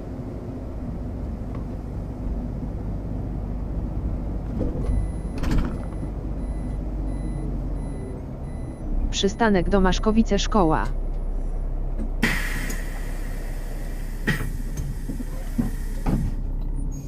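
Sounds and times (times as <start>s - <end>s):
bus engine running: 0.0s - 17.0s
road noise: 0.0s - 17.0s
compressed air hiss: 12.2s - 16.3s.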